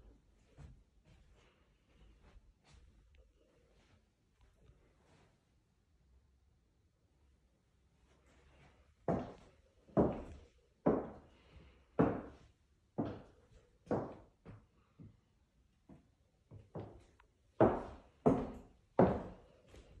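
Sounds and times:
slow knocking footsteps: 9.1s - 11.2s, 12.0s - 12.4s, 13.0s - 15.2s, 15.9s - 20.0s.

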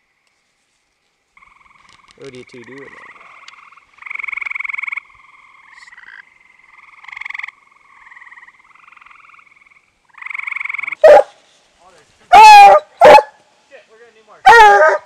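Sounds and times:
toads trilling: 1.4s - 11.1s.

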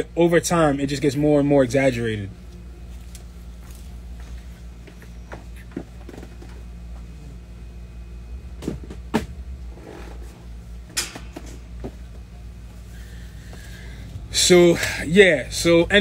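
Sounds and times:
steady low hum: 0.0s - 16.0s
objects knocking and clunking: 10.9s - 12.2s.

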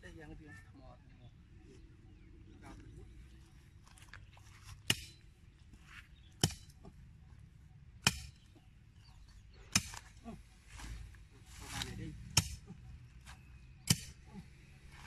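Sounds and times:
digging tool striking hard ground: 4.8s - 5.2s, 6.4s - 6.9s, 8.0s - 8.5s, 9.6s - 10.1s, 11.7s - 12.7s, 13.8s - 14.2s.

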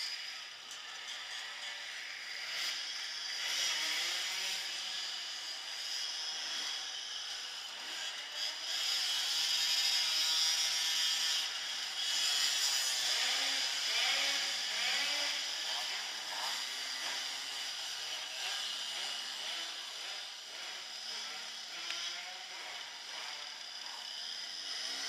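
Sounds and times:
dirt bike engines revving: 12.3s - 25.0s.

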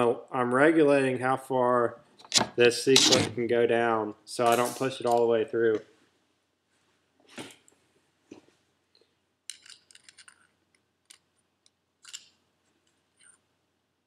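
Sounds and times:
metal clicks and scrapes: 2.2s - 3.3s, 9.5s - 11.2s.

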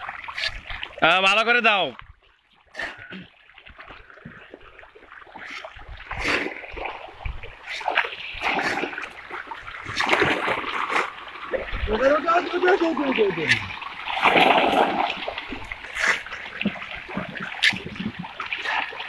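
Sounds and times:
fish splashing at surface: 3.7s - 11.8s, 13.0s - 19.0s.

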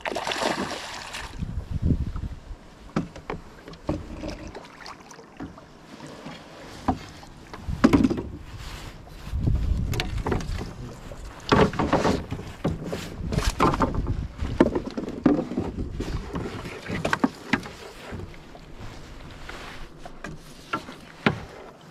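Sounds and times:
rustling: 5.9s - 21.9s.

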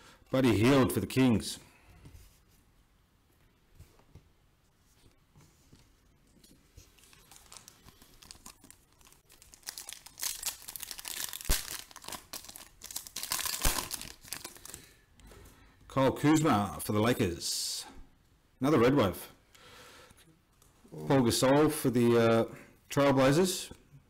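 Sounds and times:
foil wrapper crinkling and tearing: 6.8s - 15.0s.

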